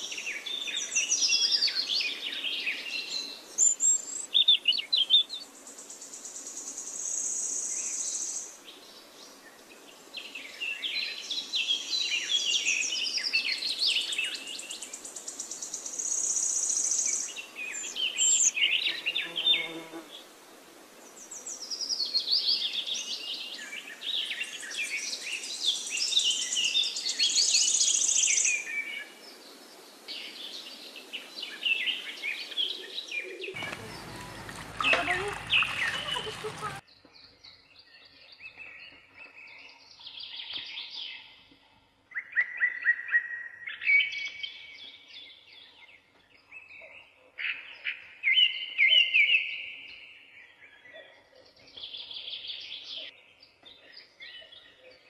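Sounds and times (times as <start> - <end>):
birds chirping and singing: 33.2 - 36.8.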